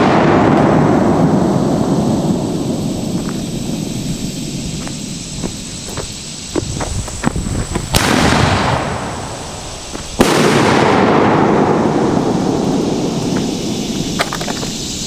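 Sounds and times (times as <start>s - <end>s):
large firework booms with echo: 0.0s - 4.8s, 7.4s - 14.1s
small firework pops: 6.6s - 9.1s, 14.2s - 14.8s.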